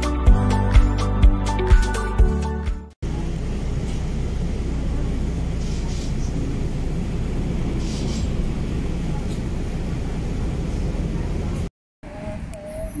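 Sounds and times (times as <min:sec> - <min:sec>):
background music: 0:00.0 - 0:02.9
bus engine and road rumble: 0:03.0 - 0:13.0.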